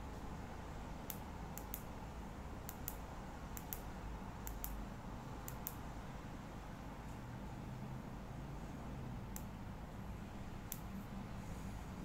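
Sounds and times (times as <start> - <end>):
flashlight switch clicking: 1.1 - 1.9, 3.6 - 3.8.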